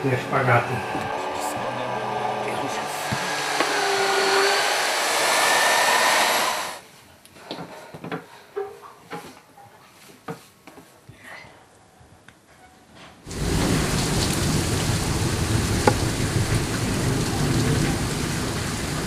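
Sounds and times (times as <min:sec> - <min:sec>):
electric mixer motor whine: 0:00.0 - 0:06.8.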